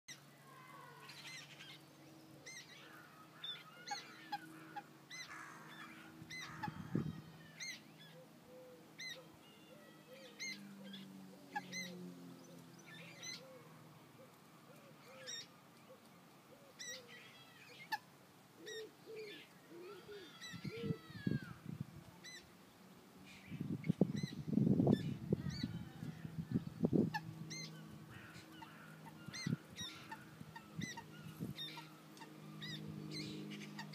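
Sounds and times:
low honking bird calls: 24.2 - 33.9.

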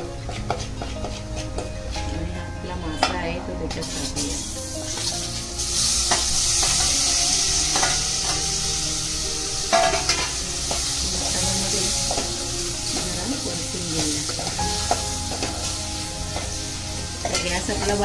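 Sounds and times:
fish sizzling in hot oil: 3.8 - 18.0.

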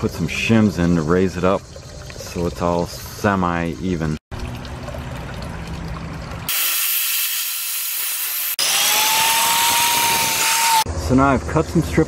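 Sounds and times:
loud tool noise with hum: 6.5 - 10.9
rough power tool noise: 7.1 - 10.9.

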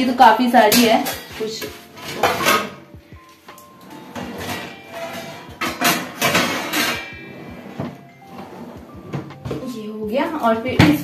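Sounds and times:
background music: 0.0 - 11.0
metal plates and utensils clinking: 0.6 - 2.9, 4.1 - 9.6.

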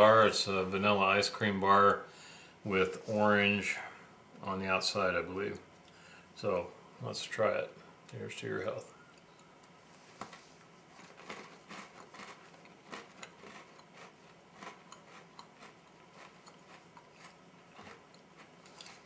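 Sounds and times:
chewing crunching: 10.9 - 19.0
crunchy cookie bite: 10.9 - 19.0.

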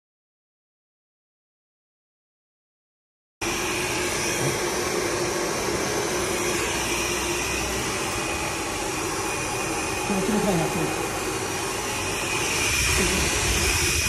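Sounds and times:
welding machine running: 3.5 - 14.0.

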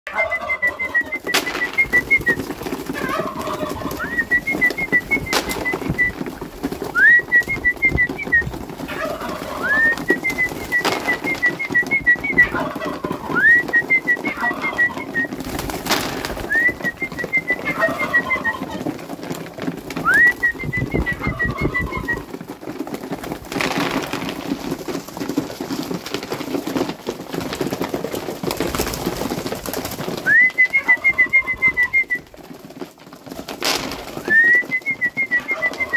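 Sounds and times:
pigeons cooing: 0.1 - 19.0, 19.9 - 22.3, 30.6 - 32.2, 33.8 - 35.9
wing flaps: 0.4 - 35.9.

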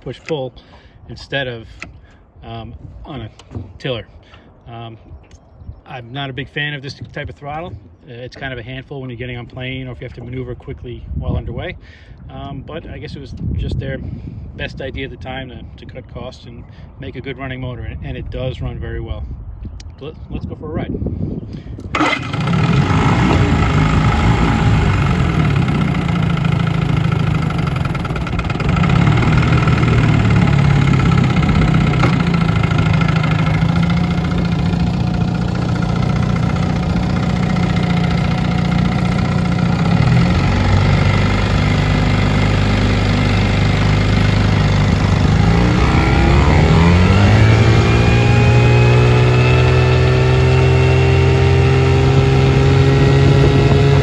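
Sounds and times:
outboard motor running: 21.8 - 54.0.

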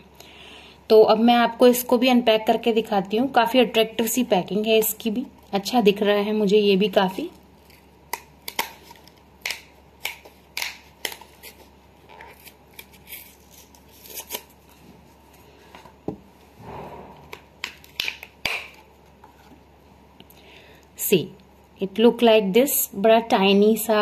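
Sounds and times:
card tearing rustle: 7.2 - 14.8.

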